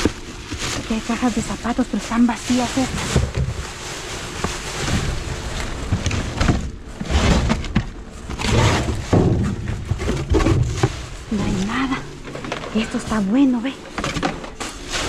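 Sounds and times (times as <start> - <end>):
trash rustling and scraping: 0.0 - 15.0
dull thumps and knocks: 4.4 - 11.6.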